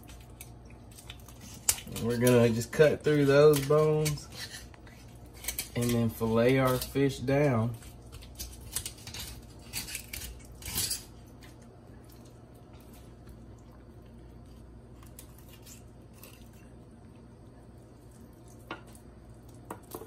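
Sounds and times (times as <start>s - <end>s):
knife scraping on stone countertop: 1.4s - 7.0s, 7.7s - 11.2s.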